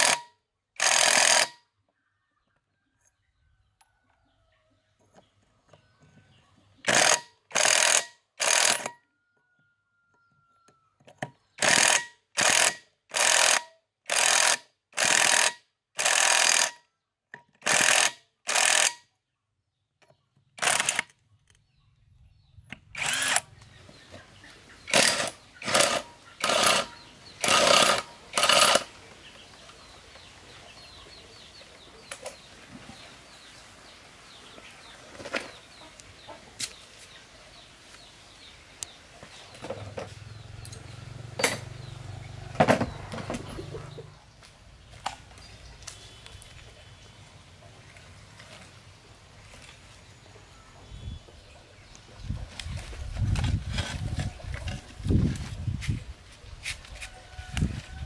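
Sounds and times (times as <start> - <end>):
impact wrench bursts: 0.0 - 1.6, 6.8 - 8.9, 11.6 - 16.8, 17.6 - 19.0, 20.6 - 21.1, 23.0 - 23.6, 24.9 - 28.9
birds chirping: 19.2 - 58.0.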